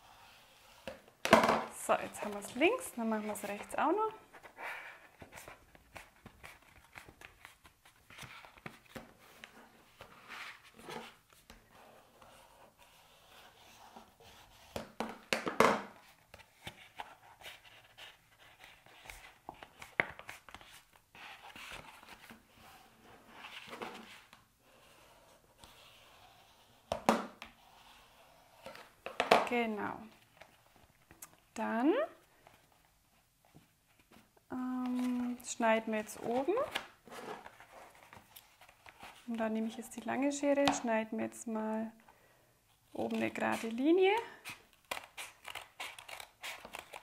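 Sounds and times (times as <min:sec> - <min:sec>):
cardboard rustling and scraping: 0:00.0 - 0:15.1, 0:36.0 - 0:39.4.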